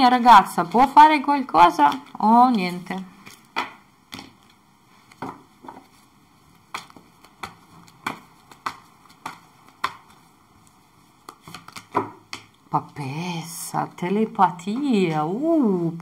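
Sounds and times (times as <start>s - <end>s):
cards being shuffled: 1.8s - 12.7s.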